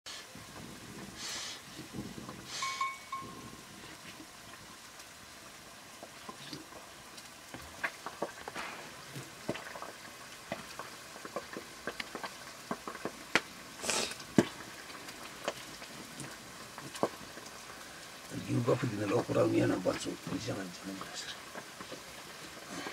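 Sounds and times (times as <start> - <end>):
wood fire crackling and popping: 0.1 - 22.9.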